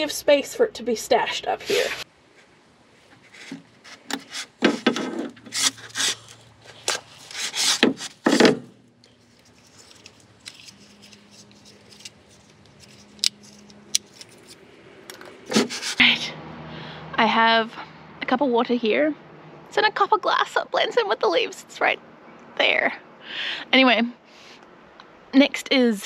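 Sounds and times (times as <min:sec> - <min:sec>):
hands scraping hose fitting: 0:03.1 - 0:16.0.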